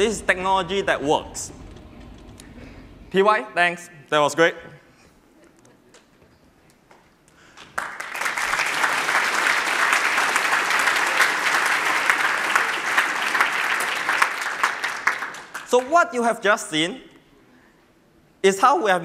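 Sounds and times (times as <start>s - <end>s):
audience applauding: 7.5s - 16.0s.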